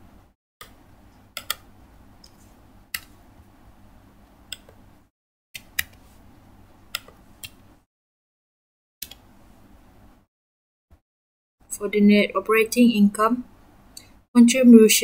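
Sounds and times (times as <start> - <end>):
low room hum: 0.0 - 7.9, 9.0 - 10.3, 11.7 - 15.0
laptop keys and mouse clicks: 0.6 - 2.4, 3.0 - 3.2, 4.5 - 4.8, 5.6 - 6.0, 6.9 - 7.6.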